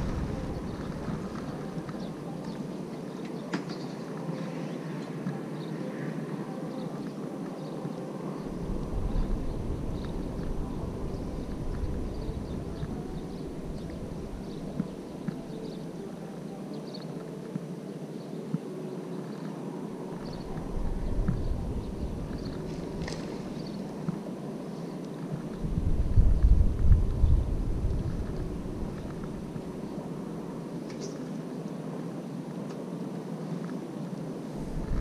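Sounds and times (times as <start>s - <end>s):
wind buffeting the microphone: 0.0s - 3.1s, 7.8s - 16.1s, 19.9s - 30.8s, 31.4s - 35.0s.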